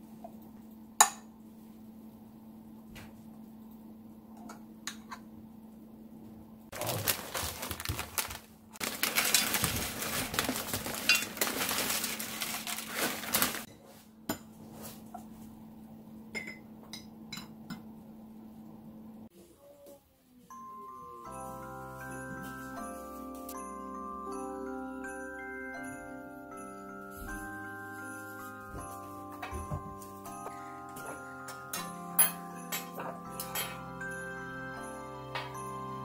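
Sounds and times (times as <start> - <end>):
chips rattling from plastic bag: 6.7 - 13.7.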